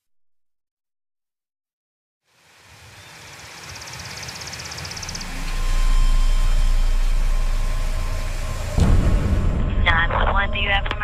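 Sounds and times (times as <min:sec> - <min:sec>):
deep low hum: 0:04.9 - 0:11.0.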